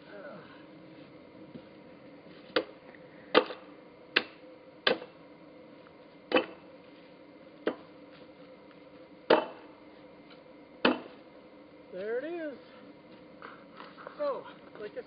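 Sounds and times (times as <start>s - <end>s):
axe chopping into log: 3.3s - 5.2s, 6.3s - 6.6s, 7.6s - 7.9s, 9.3s - 9.7s, 10.8s - 11.2s.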